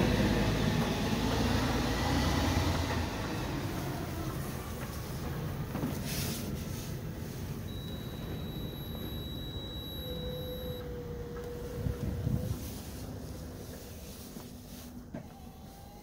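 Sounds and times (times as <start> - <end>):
high electronic beep tone: 7.7 - 10.8
low steady tone: 7.7 - 11.6.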